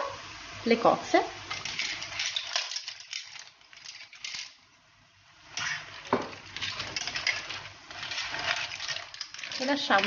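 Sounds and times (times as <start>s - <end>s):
mussel shells clattering: 6.5s - 10.0s.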